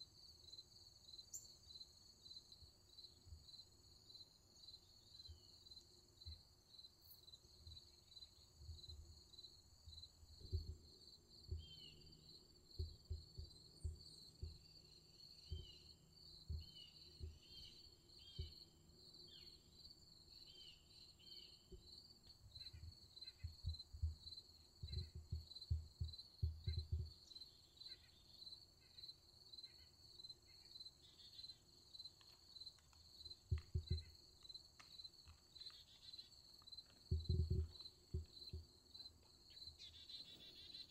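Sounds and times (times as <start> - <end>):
crickets chirping: 0.0 - 40.9
soft low thumps: 10.3 - 11.9, 12.7 - 18.7, 23.4 - 27.3, 37.1 - 38.7.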